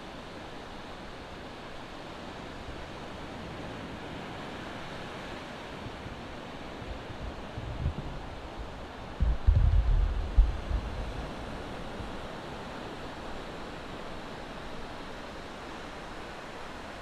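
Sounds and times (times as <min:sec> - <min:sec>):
wind bumps on microphone: 0:05.8 - 0:11.7.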